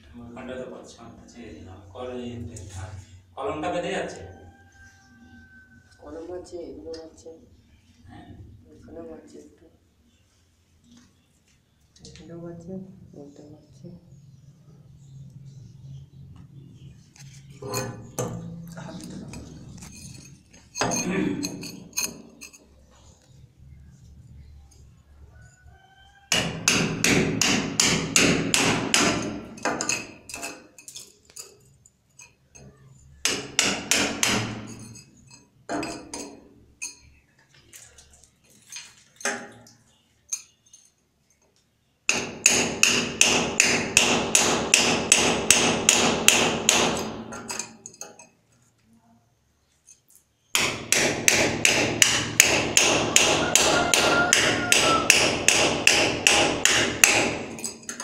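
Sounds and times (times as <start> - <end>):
hammer striking masonry: 26.3 - 30.7, 33.2 - 34.9, 42.1 - 47.8, 50.5 - 58.0.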